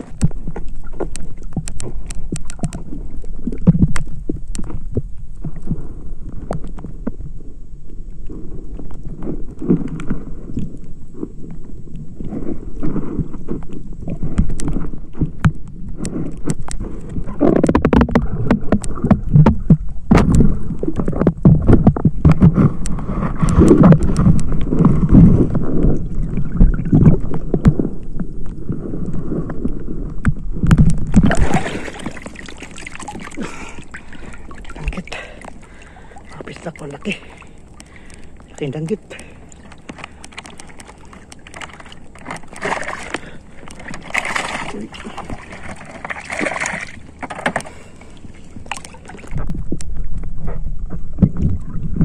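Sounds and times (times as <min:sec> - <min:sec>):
water splashing and sloshing: 0:00.0 - 0:52.0.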